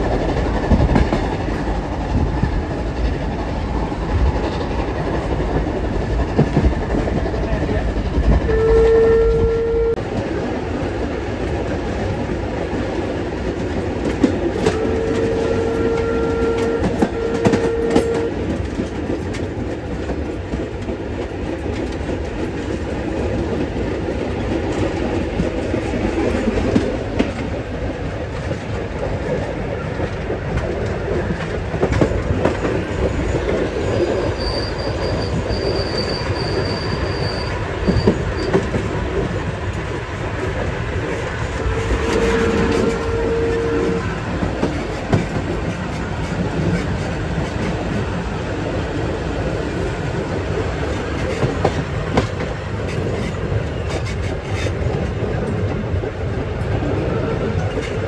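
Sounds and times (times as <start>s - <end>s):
train wheels clickety-clack: 0.0s - 58.0s
locomotive whistle: 8.5s - 10.0s, 14.6s - 18.4s, 33.9s - 38.6s, 41.5s - 44.2s
faint high wheel squeal: 33.1s - 38.7s.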